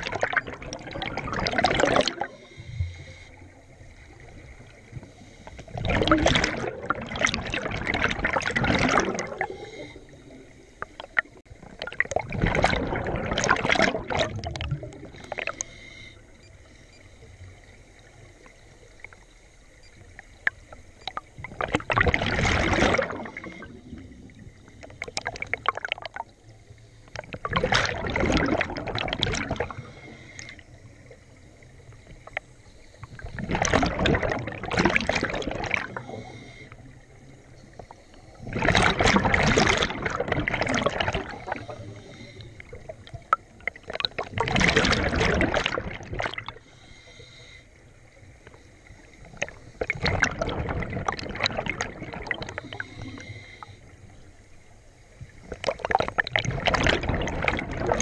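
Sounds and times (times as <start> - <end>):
breath hiss: 41.3 - 42.7, 46.6 - 47.8, 52.6 - 54.0.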